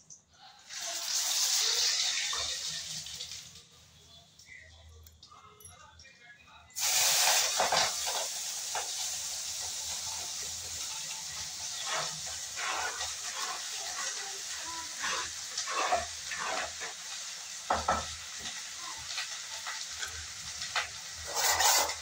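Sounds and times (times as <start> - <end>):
vegetables sizzling in hot oil: 0.6 - 3.8, 6.8 - 22.0
spoon scraping and knocking: 20.8 - 22.0.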